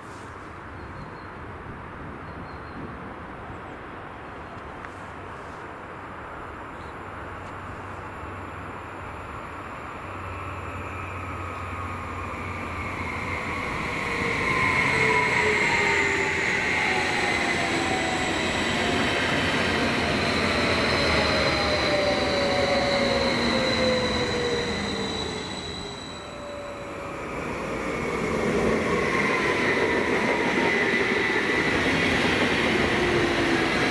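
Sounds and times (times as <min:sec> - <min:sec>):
train wheels rolling past: 0:10.0 - 0:33.9
whining tones sliding down: 0:11.3 - 0:33.9.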